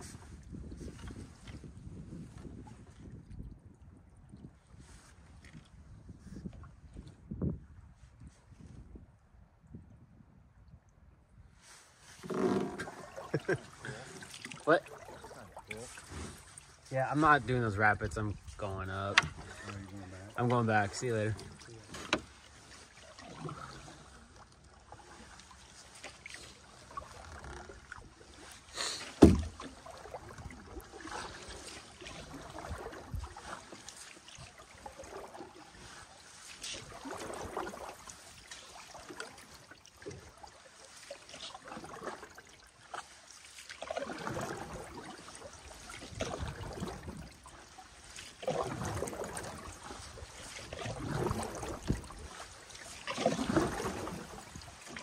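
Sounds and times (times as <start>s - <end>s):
water splashing against hull: 0.0s - 7.5s, 11.6s - 55.0s
paddle swishing: 11.6s - 55.0s.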